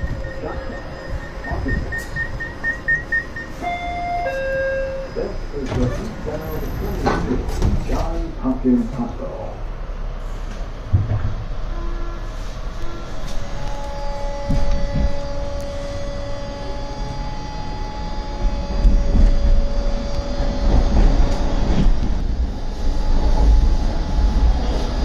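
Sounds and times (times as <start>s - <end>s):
two-note electrical whine: 0.0s - 5.9s, 11.7s - 25.0s
subway train rumble: 0.0s - 25.0s.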